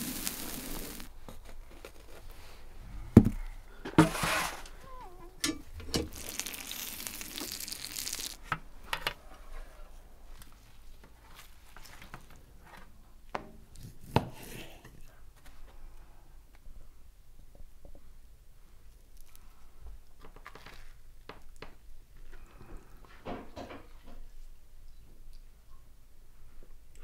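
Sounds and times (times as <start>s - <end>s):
hiss: 0.0s - 1.1s, 6.1s - 8.4s.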